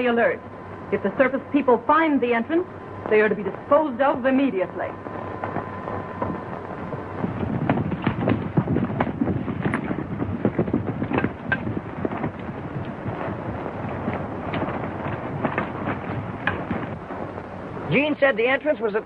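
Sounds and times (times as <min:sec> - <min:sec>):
horses galloping hoofbeats: 0:05.3 - 0:19.0.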